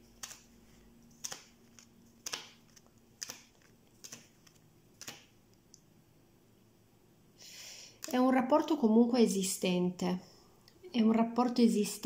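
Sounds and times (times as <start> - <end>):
playing cards snapping on table: 1.2 - 5.3.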